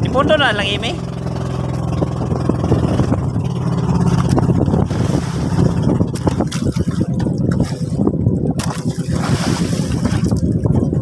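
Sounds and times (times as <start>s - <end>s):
boat engine humming: 0.0s - 11.0s
water slapping against hull: 0.0s - 11.0s.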